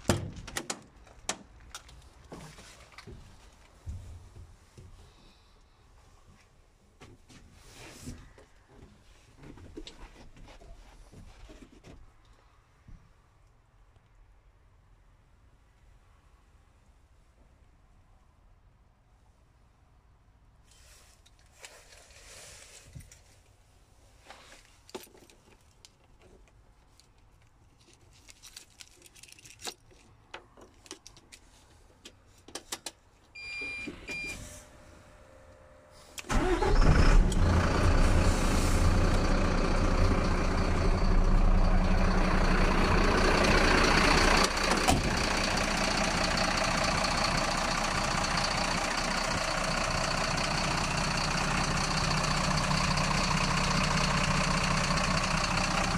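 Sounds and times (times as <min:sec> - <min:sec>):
diesel truck engine starting and idling: 0:33.4 - 0:55.9.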